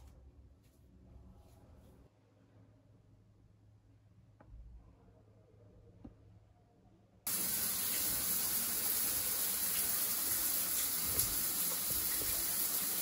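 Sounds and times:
running water rushing: 0:07.3 - 0:13.0.

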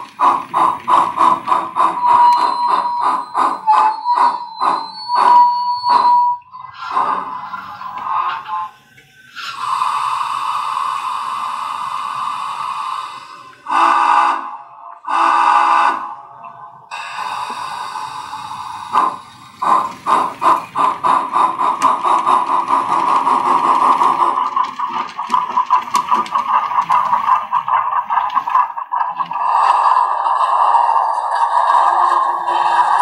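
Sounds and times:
steady steam hiss: 0:00.0 - 0:02.0, 0:06.9 - 0:15.9, 0:16.9 - 0:33.0
steam exhaust chuffs: 0:00.0 - 0:06.2, 0:06.8 - 0:33.0
locomotive whistle blasts: 0:02.0 - 0:06.5, 0:13.7 - 0:16.4.

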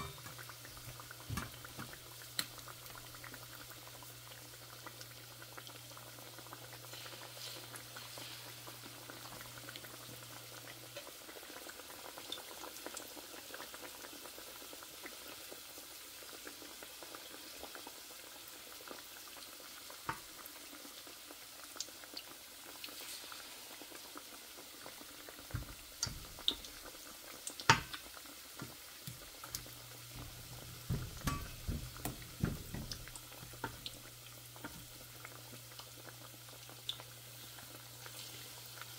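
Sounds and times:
utensils knocking and clattering: 0:00.0 - 0:00.3, 0:30.1 - 0:33.8
liquid bubbling in a pot: 0:00.0 - 0:38.9.

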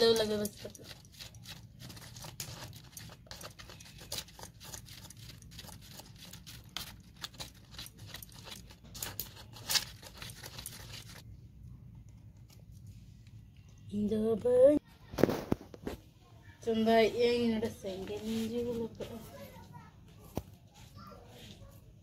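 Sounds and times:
spoon beating eggs in a cup: 0:00.0 - 0:11.2
leaves crinkling: 0:02.0 - 0:11.2.

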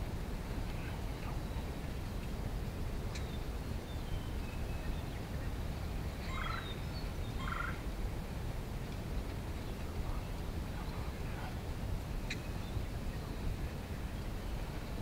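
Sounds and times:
turkeys gobbling: 0:06.3 - 0:06.6, 0:07.4 - 0:07.8.

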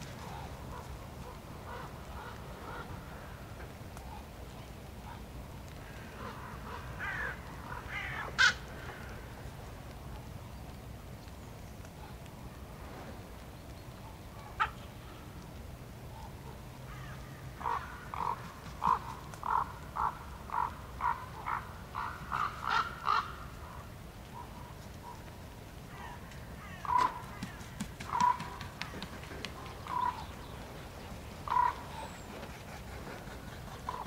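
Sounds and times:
crows cawing: 0:01.7 - 0:03.6, 0:05.7 - 0:09.4, 0:16.9 - 0:23.9, 0:25.9 - 0:30.5, 0:31.4 - 0:32.3.

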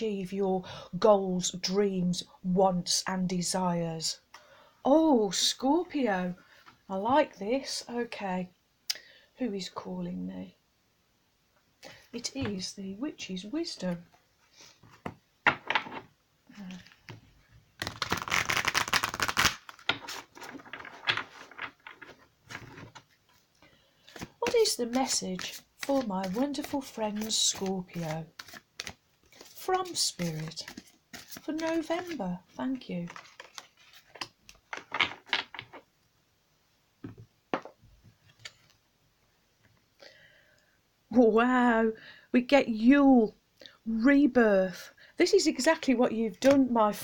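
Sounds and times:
cards being shuffled: 0:17.8 - 0:23.5, 0:24.1 - 0:32.2, 0:32.8 - 0:35.8.

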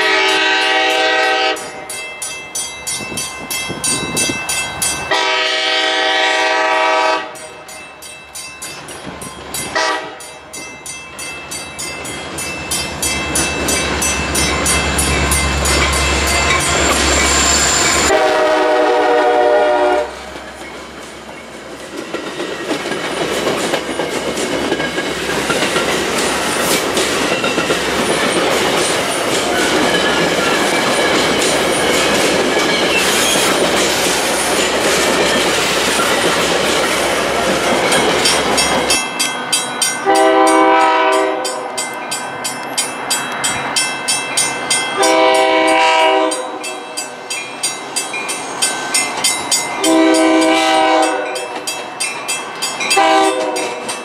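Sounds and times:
train horn: 0:00.0 - 0:01.8, 0:05.1 - 0:07.5, 0:09.8 - 0:10.3, 0:17.5 - 0:20.4, 0:40.0 - 0:41.8, 0:45.0 - 0:46.9, 0:49.8 - 0:51.6, 0:53.0 - 0:53.9
crossing bell ringing rapidly: 0:00.0 - 0:18.3, 0:20.3 - 0:54.0
train cars rumbling past: 0:00.0 - 0:54.0
wheels clicking over rail joints: 0:20.4 - 0:40.0.

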